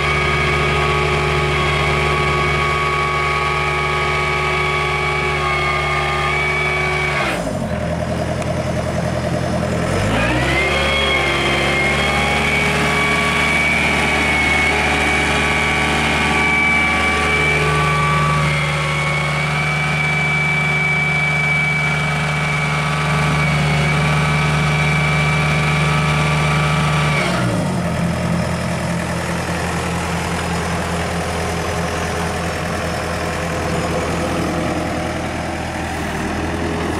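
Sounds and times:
excavator engine running: 0.0s - 36.9s
drivetrain mechanical whine: 10.8s - 27.6s.

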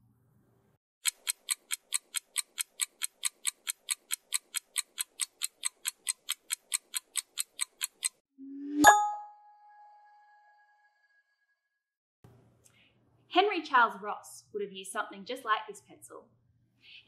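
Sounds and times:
clock ticking: 1.0s - 8.2s
bell-like ding: 8.4s - 10.9s.

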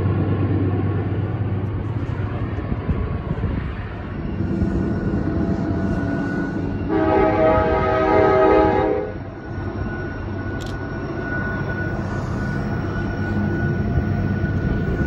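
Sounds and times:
freight train wheels rumbling: 0.0s - 15.0s
locomotive air horn chord: 6.8s - 9.3s.

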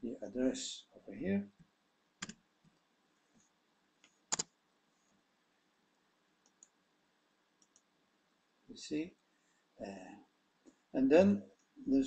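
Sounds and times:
keyboard and mouse clicks: 2.2s - 2.4s, 4.0s - 4.5s, 6.4s - 6.8s, 7.6s - 7.9s.

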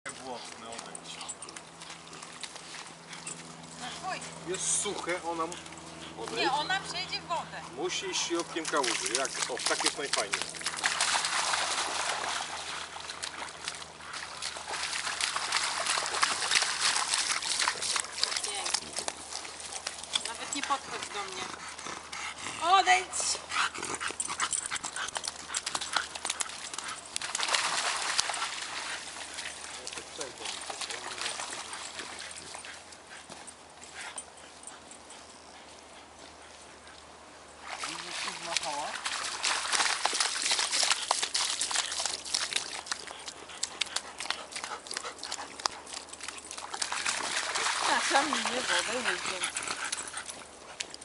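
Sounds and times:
dog paws splashing in water: 0.1s - 51.0s
soft steps in puddle: 8.4s - 21.1s, 37.6s - 51.0s.

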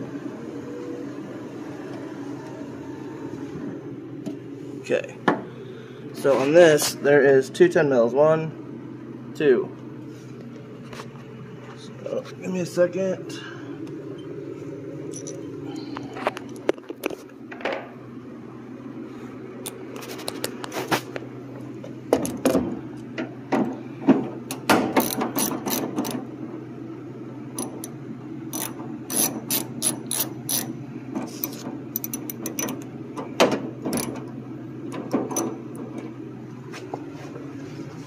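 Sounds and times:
ratchet wrench clicking: 25.0s - 26.2s, 27.6s - 27.9s, 28.5s - 30.7s, 31.3s - 32.8s, 33.9s - 34.2s.

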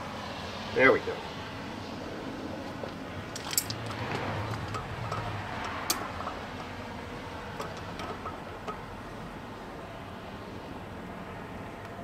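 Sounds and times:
small metallic clicks: 3.3s - 6.8s.

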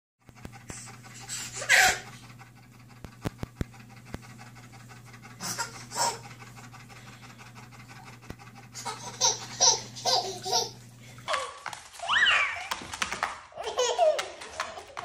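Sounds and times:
dog panting: 0.2s - 11.3s
baby giggling: 1.2s - 2.1s, 5.4s - 6.3s, 8.8s - 10.8s, 13.6s - 15.0s.

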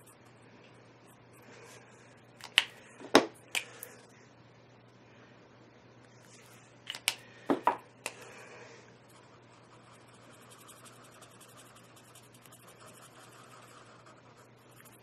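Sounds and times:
marker cap clicks and knocks: 2.4s - 3.7s, 6.9s - 8.2s
marker tip scratching paper: 9.1s - 15.0s.

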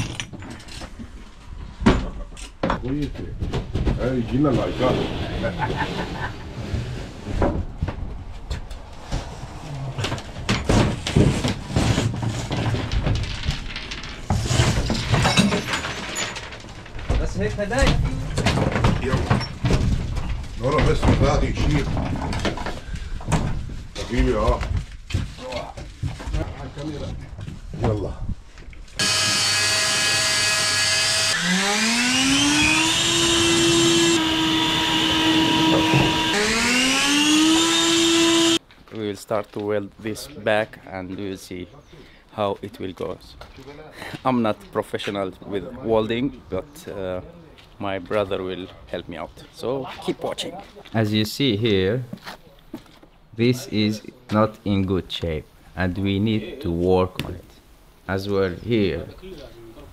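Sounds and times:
shop vacuum motor whine: 29.0s - 38.6s
wooden panel scraping on metal floor: 35.3s - 36.3s.

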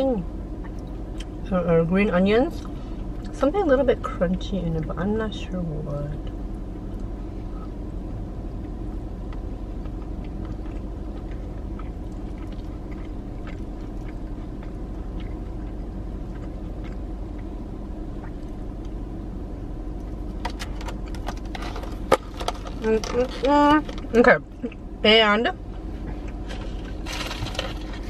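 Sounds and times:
car cabin hum: 0.0s - 28.0s
chewing: 9.8s - 17.6s.

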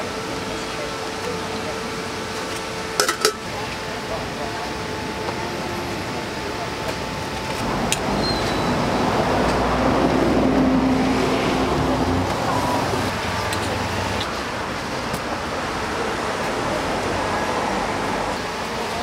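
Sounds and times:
road noise: 0.0s - 19.0s
vehicle engine passing: 7.6s - 18.4s.

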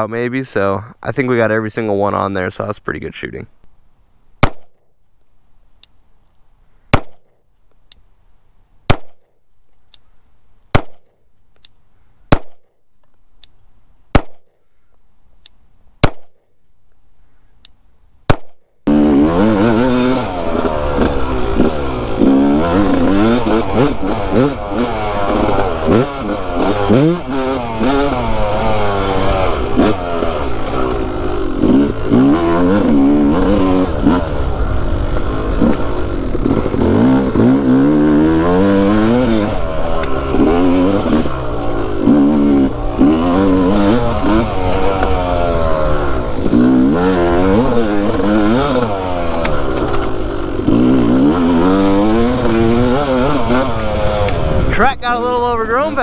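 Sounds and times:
dirt bike engine accelerating: 18.3s - 56.0s.

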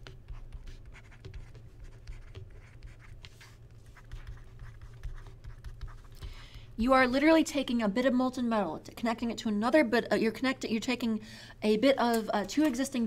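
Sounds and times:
stylus writing on tablet: 0.0s - 6.5s.

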